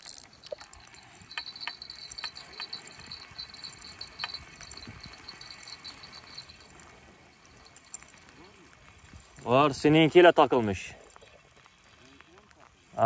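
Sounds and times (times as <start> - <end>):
fishing reel clicking: 0.0 - 8.2.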